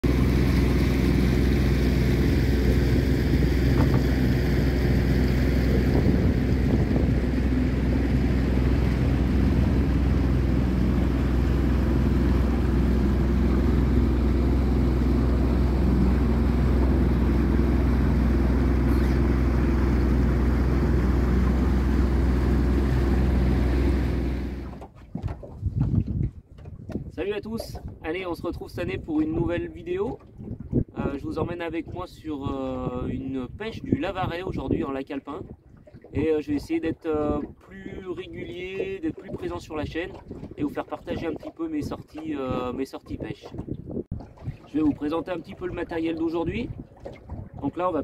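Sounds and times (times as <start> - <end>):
water rushing: 0.0 - 24.9, 35.3 - 43.5, 44.1 - 48.0
outboard motor running: 0.0 - 28.0, 35.4 - 48.0.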